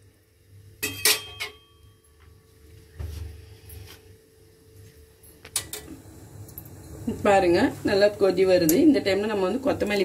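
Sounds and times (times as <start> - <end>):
faint steady hum: 0.0 - 10.0
metal ladle clinking on pot: 0.8 - 1.7.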